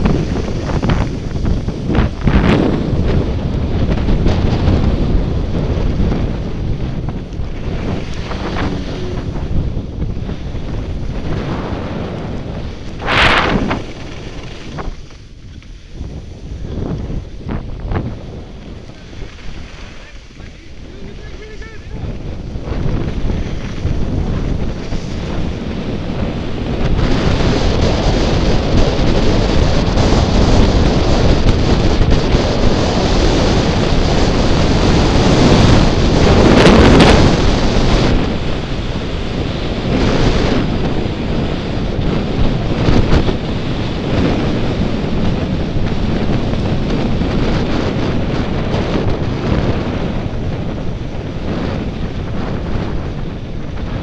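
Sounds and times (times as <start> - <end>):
wind rushing over microphone: 0.0 - 54.0
skis hissing on snow: 18.9 - 22.0.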